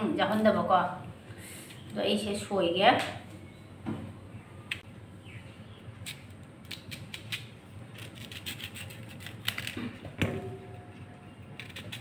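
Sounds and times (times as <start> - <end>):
knife scraping mango skin: 6.0 - 10.0, 11.3 - 12.0.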